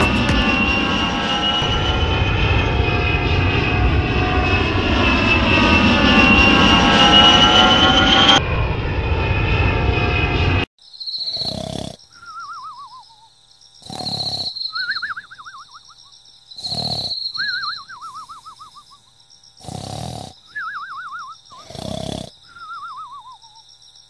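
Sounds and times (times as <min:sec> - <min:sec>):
jet airliner flyover: 0:00.0 - 0:10.7
cartoon snore: 0:11.2 - 0:12.1, 0:13.8 - 0:14.6, 0:16.6 - 0:17.6, 0:19.6 - 0:20.6, 0:21.5 - 0:22.5.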